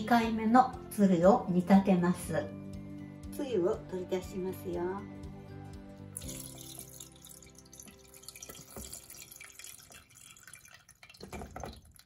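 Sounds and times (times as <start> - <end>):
liquid pouring into colander: 6.2 - 12.0.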